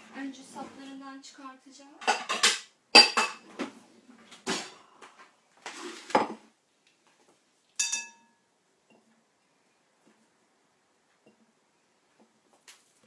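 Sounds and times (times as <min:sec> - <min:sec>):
dishes clattering: 0:02.0 - 0:03.7, 0:07.8 - 0:08.3
glass clink: 0:07.8 - 0:09.0.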